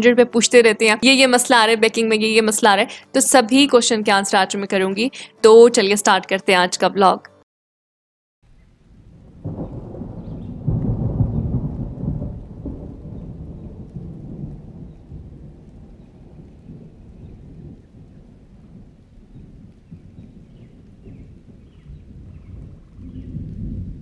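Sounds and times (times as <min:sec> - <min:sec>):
rain: 0:08.4 - 0:24.0
low rumble: 0:08.5 - 0:24.0
strong wind: 0:08.5 - 0:24.0.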